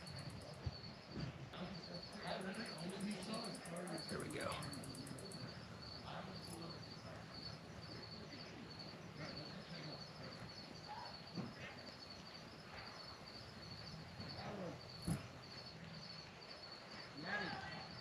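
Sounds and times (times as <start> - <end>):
insects chirping: 0.0 - 18.0.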